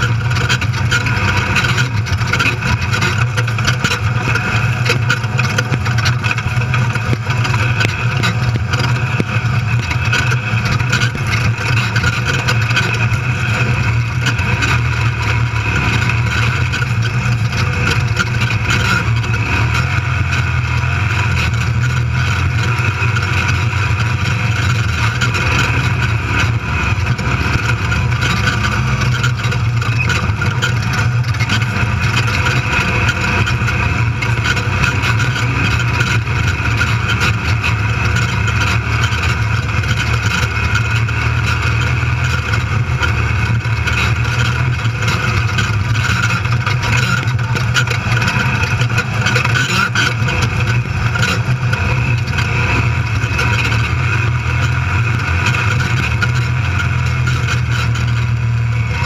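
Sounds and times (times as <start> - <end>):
loud rumble and rattle: 0.0 - 59.0
race vehicle engine running hard: 0.0 - 59.0.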